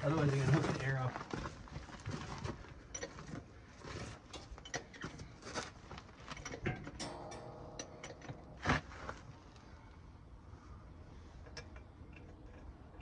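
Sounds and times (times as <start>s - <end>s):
metal clunks of tire on hub: 6.3s - 9.7s.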